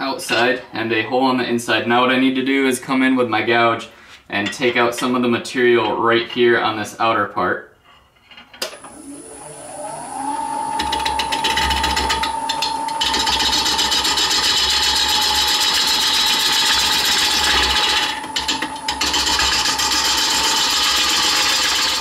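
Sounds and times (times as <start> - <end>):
lathe motor whine: 8.8 - 22.0.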